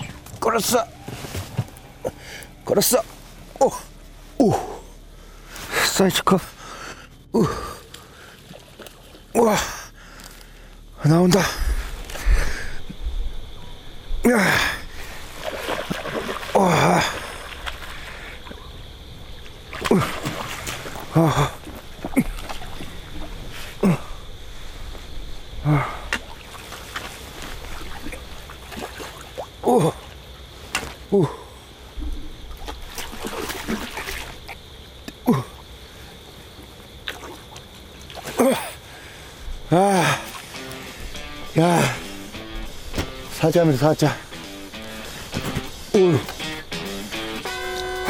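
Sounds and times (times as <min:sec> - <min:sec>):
water splashing: 0:07.9 - 0:09.6, 0:14.3 - 0:30.2, 0:32.0 - 0:34.8, 0:36.6 - 0:39.1, 0:39.7 - 0:47.8
fish splashing in water: 0:15.2 - 0:23.6, 0:32.4 - 0:34.6
person exclaiming: 0:45.9 - 0:46.4.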